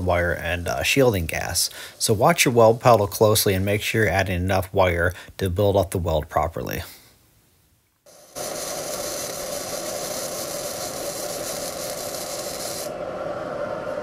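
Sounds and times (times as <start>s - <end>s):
arc welding hiss: 0.0s - 4.0s, 8.1s - 13.0s.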